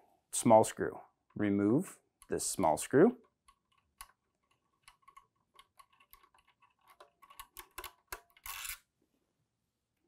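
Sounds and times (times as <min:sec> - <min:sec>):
screwdriver clicking on screw: 0:03.4 - 0:08.8.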